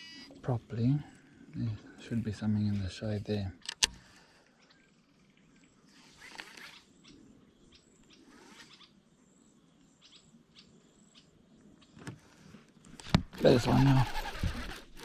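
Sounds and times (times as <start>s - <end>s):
faint bird chirps: 4.1s - 12.6s.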